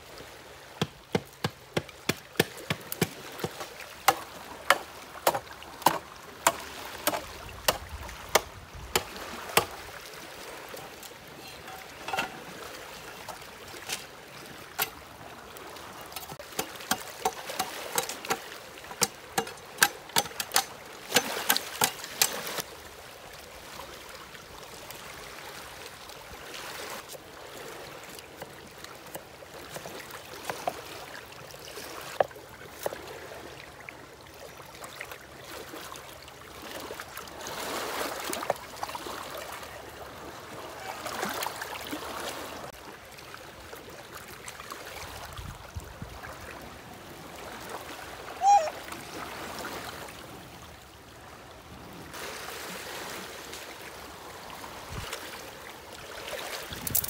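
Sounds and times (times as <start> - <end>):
water running and splashing: 0.8 - 22.7.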